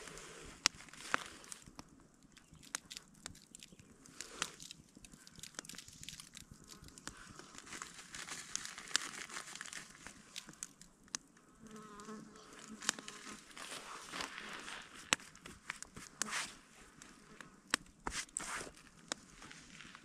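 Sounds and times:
plastic packaging crinkling: 0:02.4 - 0:10.9.

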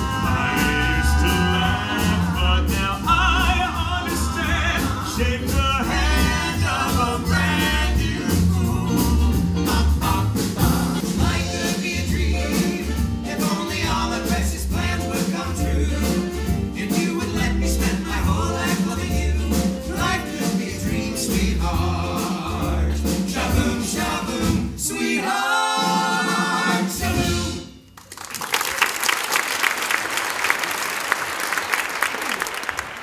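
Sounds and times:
band with steady bass beat: 0:00.0 - 0:24.7
male vocal group singing doo-wop: 0:00.0 - 0:27.7
audience applause: 0:28.0 - 0:33.0.

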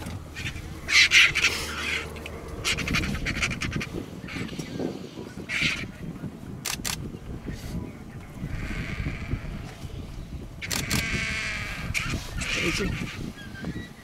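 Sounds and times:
vultures hissing squawks: 0:00.3 - 0:04.8, 0:10.6 - 0:13.6.

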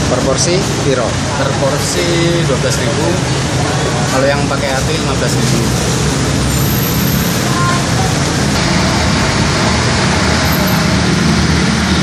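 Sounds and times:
gas burner roaring: 0:00.0 - 0:12.0
passing road traffic: 0:00.0 - 0:12.0.

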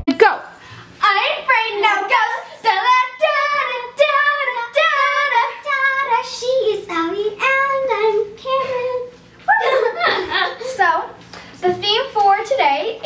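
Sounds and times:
girls singing together: 0:01.0 - 0:10.9.

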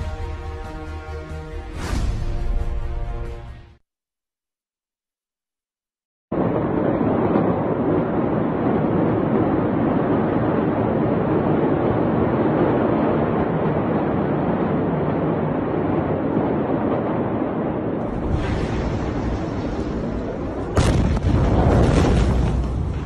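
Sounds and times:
wind buffeting microphone: 0:06.3 - 0:23.0.

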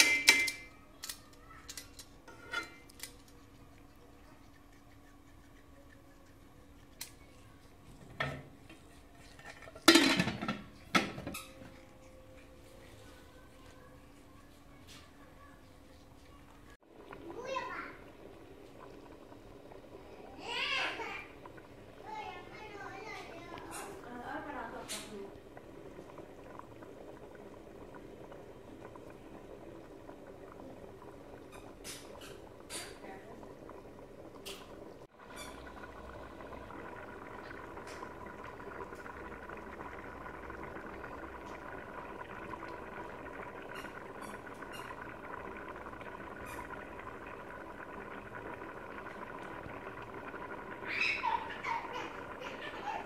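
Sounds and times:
metal lid clanking on pot: 0:00.0 - 0:00.7, 0:09.4 - 0:11.5
metal spoon clanking on lid: 0:00.0 - 0:00.7
liquid boiling in a pot: 0:00.0 - 0:53.0.

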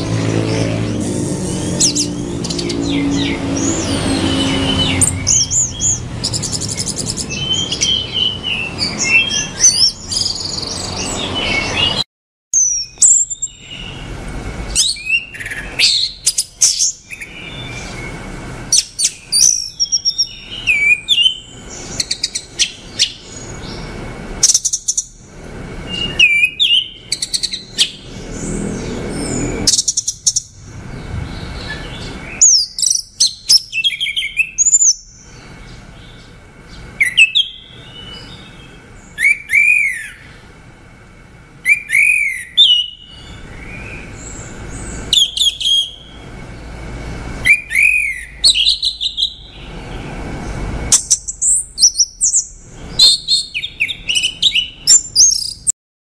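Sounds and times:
thrush singing: 0:00.0 - 0:12.0.

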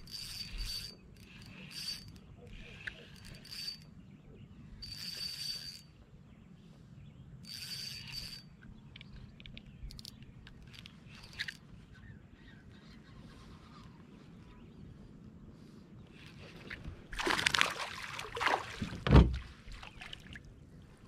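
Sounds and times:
spinning reel whirring: 0:00.0 - 0:03.9, 0:04.8 - 0:05.9, 0:07.4 - 0:08.5.

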